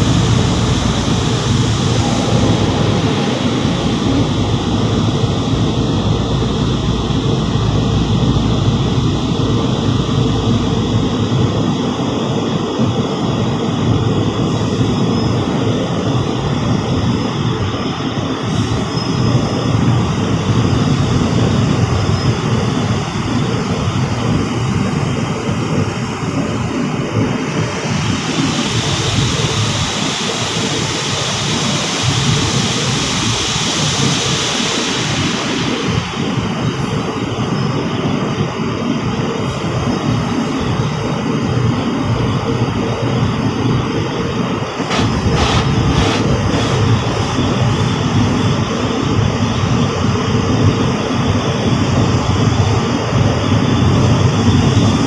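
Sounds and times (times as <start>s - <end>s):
car wash brushes and spray: 44.9s - 48.6s.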